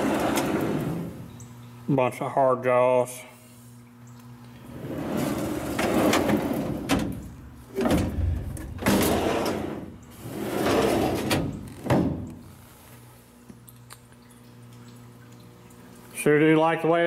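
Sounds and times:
metal drawers sliding on runners: 0.0 - 1.2, 4.7 - 7.2, 7.8 - 12.0
low steady hum: 0.0 - 17.0.

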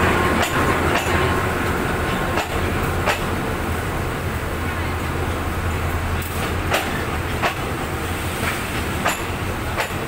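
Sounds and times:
wheels clanking over rail joints: 0.0 - 3.6, 6.1 - 10.0
train rumbling past: 0.0 - 10.0.

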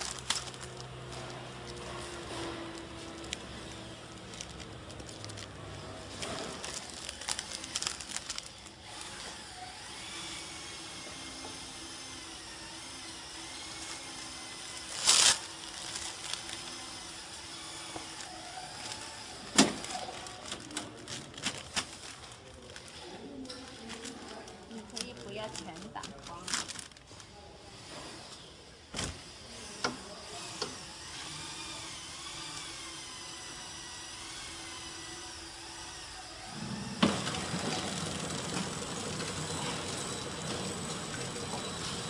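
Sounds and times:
plastic film crinkling: 0.0 - 9.3, 13.8 - 17.1, 17.9 - 27.4.

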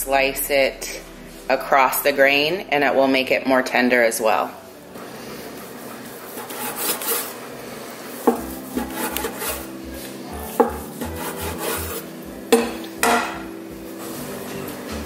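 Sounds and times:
knife sawing through steak: 6.3 - 7.4, 8.5 - 9.8, 11.0 - 12.1.

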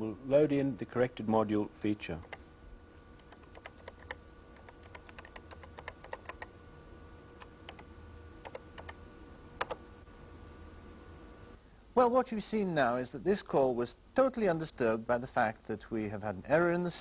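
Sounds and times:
computer keyboard keystrokes: 2.2 - 2.4, 3.2 - 6.5, 7.4 - 9.0, 9.6 - 9.8.

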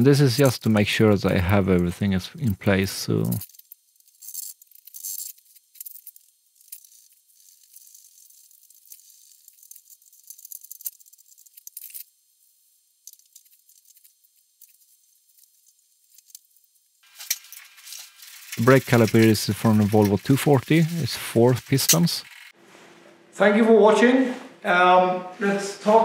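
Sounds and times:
metal tools clinking: 17.1 - 22.5.

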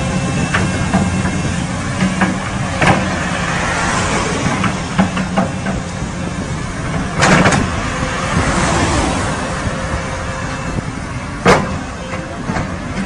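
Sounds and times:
truck engine running low: 0.0 - 13.0
car driving past: 3.0 - 4.9, 7.6 - 10.0.

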